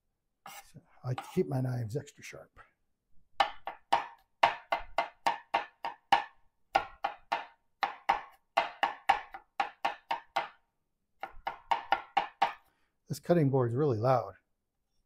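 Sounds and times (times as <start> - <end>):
knife chopping on cutting board: 3.4 - 10.6, 11.2 - 12.7.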